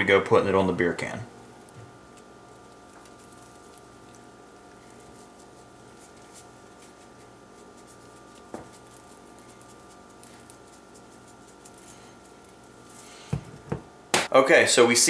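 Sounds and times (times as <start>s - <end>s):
rub falling in small ticks: 1.6s - 12.9s.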